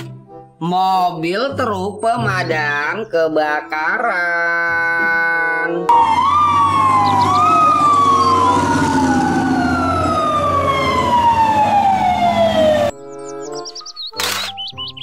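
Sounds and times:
fire truck sirens: 5.8s - 13.6s
low engine rumble: 5.9s - 12.9s.

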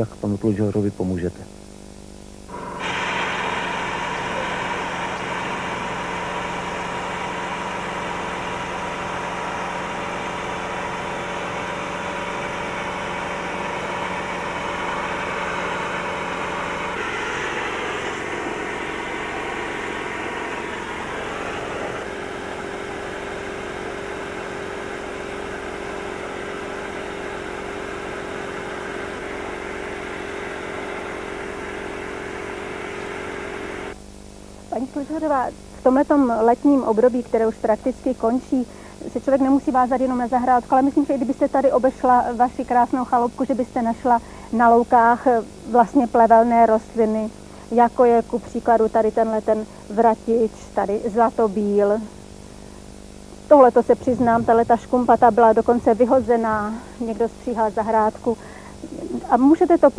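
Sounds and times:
air compressor motor running: 1.1s - 59.9s
sandblasting gun hissing: 2.5s - 33.8s.

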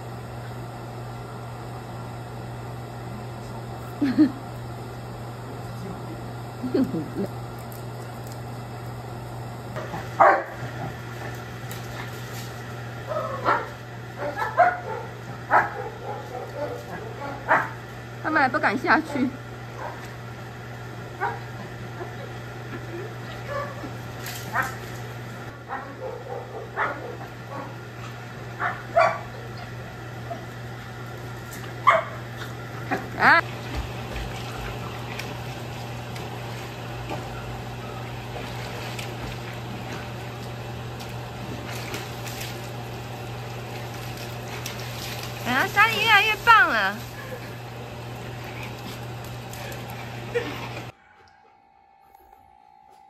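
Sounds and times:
dog barking: 10.2s - 10.6s, 13.1s - 17.8s, 21.2s - 21.5s, 23.5s - 23.8s, 25.7s - 27.8s, 28.6s - 29.4s, 31.8s - 32.2s.

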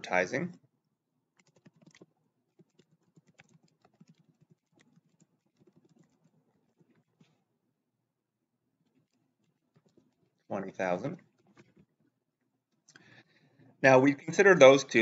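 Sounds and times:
computer keyboard typing: 1.3s - 7.3s.

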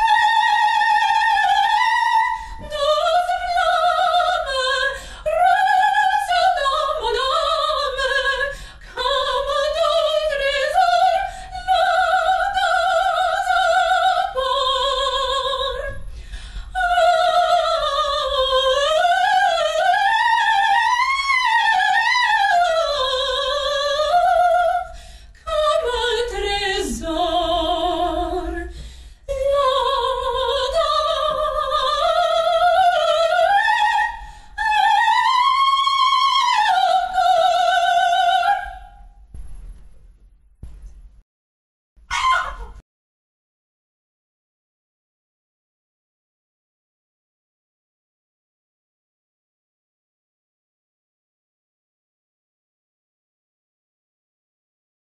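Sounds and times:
operatic singing: 16.7s - 28.7s.

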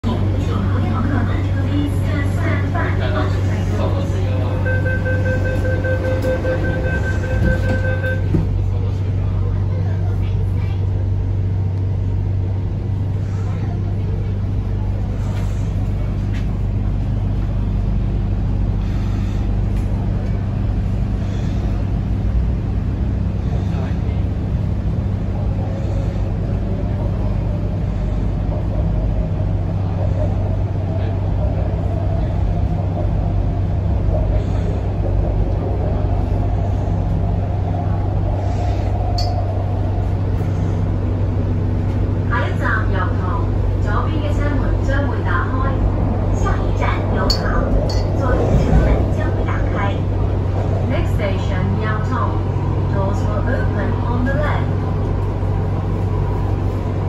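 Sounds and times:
train interior hum: 0.0s - 57.0s
wheels rumbling on track: 0.0s - 57.0s
steady higher tone: 39.1s - 39.8s.

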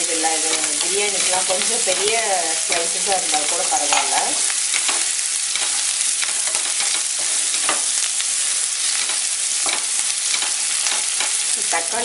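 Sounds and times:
onions sizzling in hot oil: 0.0s - 12.0s
utensil scraping pan: 0.1s - 8.0s.

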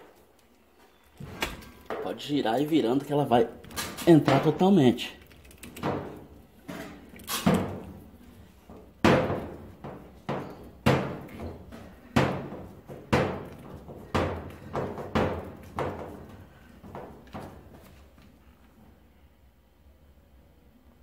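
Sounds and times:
dull knocks against sheet metal: 9.0s - 16.2s.

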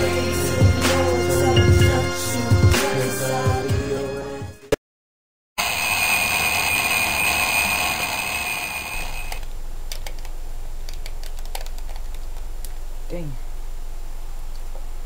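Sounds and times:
alarm clock ringing: 5.6s - 9.4s.

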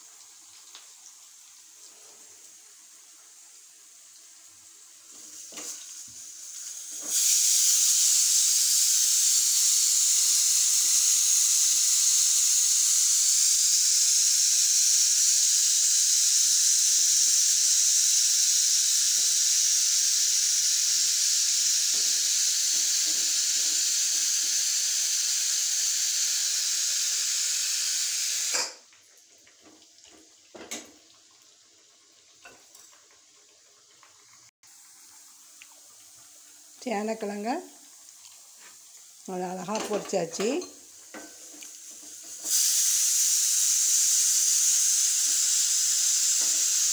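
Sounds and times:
pressure cooker steam hiss: 4.4s - 28.9s, 34.7s - 46.9s.

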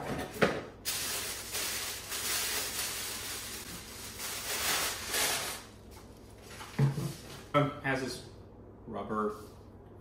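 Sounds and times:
plastic bag crinkling: 0.9s - 5.7s.

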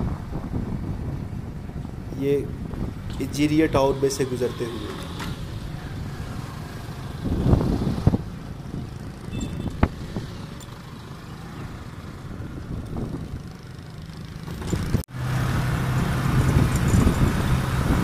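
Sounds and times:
road rumble: 0.0s - 18.0s
wind: 0.0s - 18.0s
motorbike engine running: 6.9s - 15.0s.

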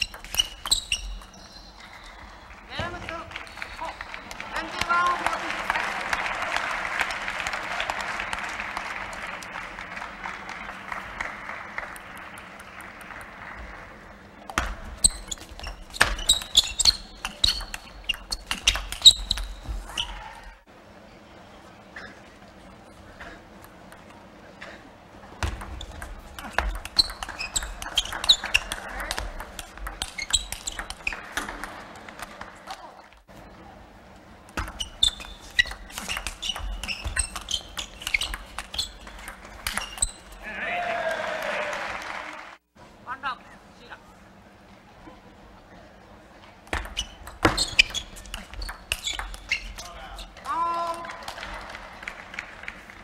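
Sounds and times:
shoes squeaking on floor: 0.0s - 2.0s, 15.0s - 20.2s, 25.8s - 31.5s, 34.6s - 40.4s, 46.7s - 50.4s
applause in a large hall: 1.9s - 14.5s, 41.1s - 42.6s, 50.7s - 53.0s
table tennis ball clicking: 14.5s - 19.5s, 25.5s - 32.3s.

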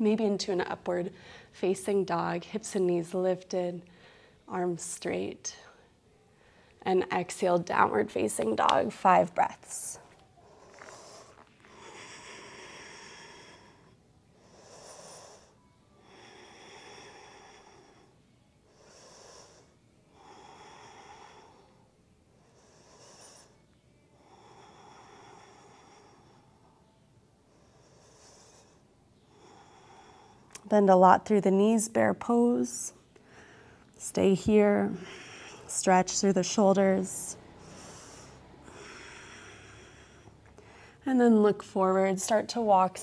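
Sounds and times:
woman breathing: 1.1s - 1.6s, 3.8s - 4.5s, 5.6s - 6.8s, 9.6s - 30.6s, 32.9s - 41.1s.

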